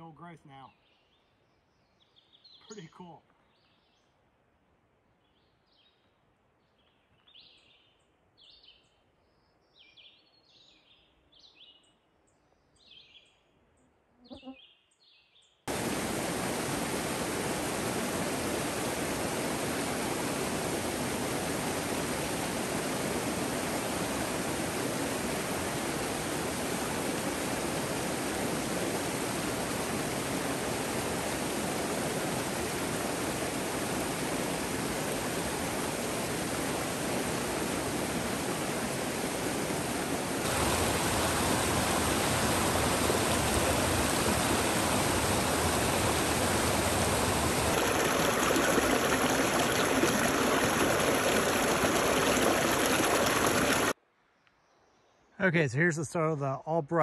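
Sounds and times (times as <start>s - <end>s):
creek water rushing: 15.7s - 54.0s.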